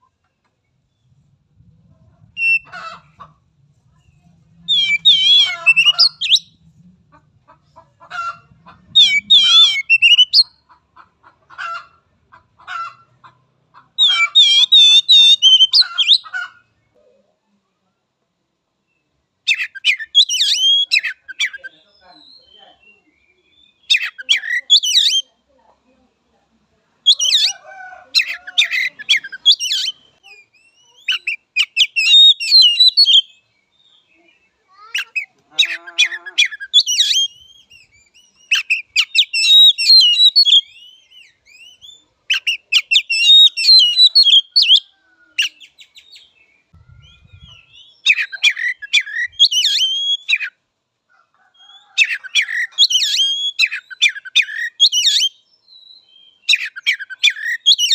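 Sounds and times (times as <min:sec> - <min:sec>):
bird singing whistles and chatter: 0:02.4 - 0:02.7, 0:04.6 - 0:06.6, 0:09.0 - 0:10.6, 0:14.0 - 0:16.2, 0:19.5 - 0:25.3, 0:27.0 - 0:27.5, 0:28.2 - 0:33.4, 0:35.0 - 0:46.3, 0:46.9 - 0:50.6, 0:51.7 - 0:57.9.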